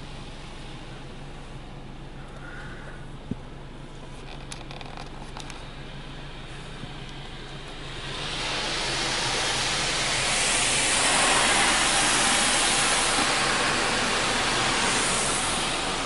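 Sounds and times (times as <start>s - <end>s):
low hum: 0.0s - 16.0s
air dryer blowers rushing hiss: 7.3s - 16.0s.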